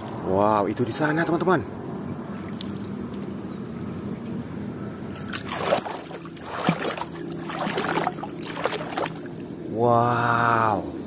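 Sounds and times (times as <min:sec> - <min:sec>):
boat motor low hum: 0:00.0 - 0:11.0
water sloshing at hull: 0:05.0 - 0:09.6.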